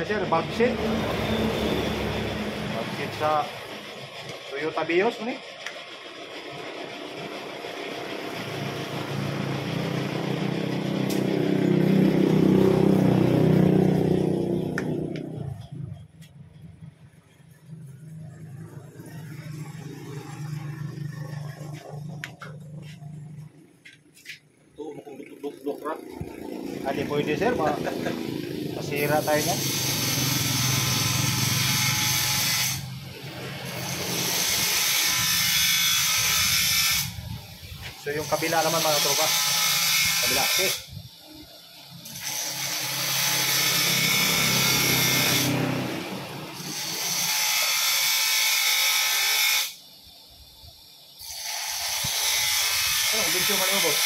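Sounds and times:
vehicle engine running: 0.0 - 31.6
power tool whirring: 5.6 - 15.7, 17.9 - 23.6, 25.9 - 54.0.

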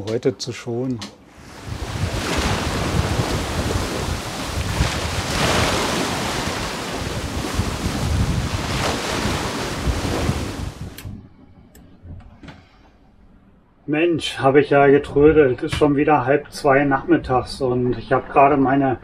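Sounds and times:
waves rushing: 1.3 - 11.0
wind buffeting microphone: 1.4 - 11.3.

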